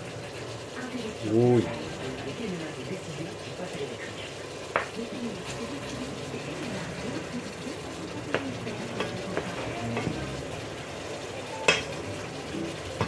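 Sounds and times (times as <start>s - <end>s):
chicken sizzling in sugar: 0.0s - 13.0s
wooden spoon knocking on pot: 8.3s - 10.3s.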